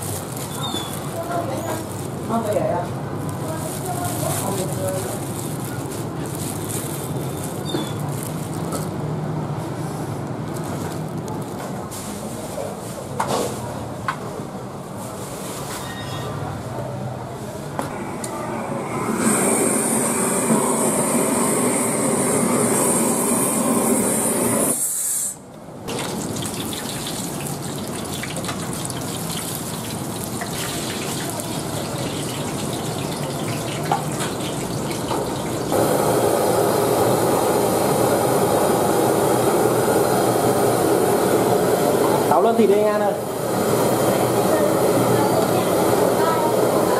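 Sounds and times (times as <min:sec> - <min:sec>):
gas burner roaring: 0:00.0 - 0:15.1, 0:17.2 - 0:46.9
gas blowtorch hissing: 0:17.9 - 0:25.5, 0:35.1 - 0:46.9
oil sizzling in a wok: 0:19.1 - 0:42.3.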